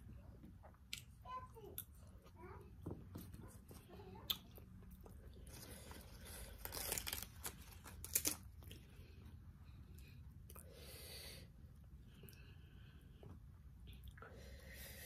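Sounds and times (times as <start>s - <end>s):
lettuce leaves tearing: 5.5s - 8.8s
lettuce leaves snapping: 5.9s - 8.8s.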